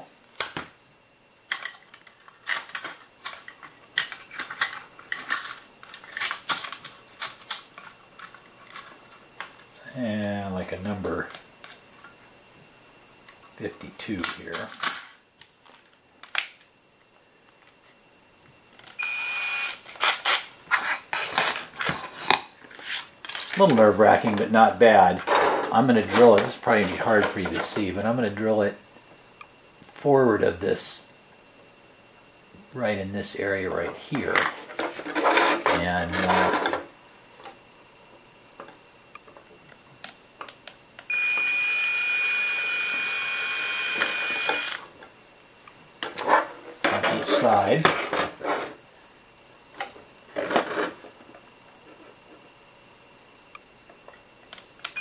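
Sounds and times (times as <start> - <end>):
cordless drill motor whine: 18.8 - 20.1, 41.1 - 45.0.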